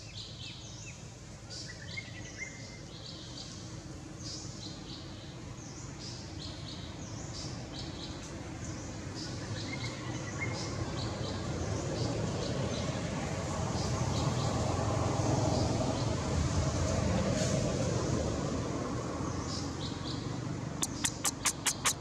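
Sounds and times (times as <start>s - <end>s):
birds chirping: 20.8s - 22.0s.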